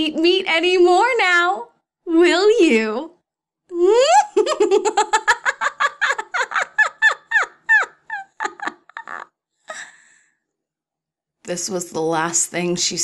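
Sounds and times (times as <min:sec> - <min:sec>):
woman cackling: 0:03.8 - 0:10.0.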